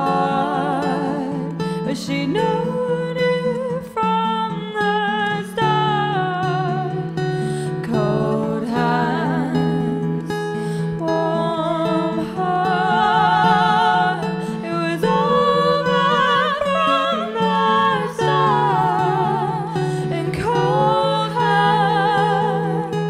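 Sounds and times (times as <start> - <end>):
acoustic guitar: 0.0 - 23.0
woman singing: 0.0 - 23.0.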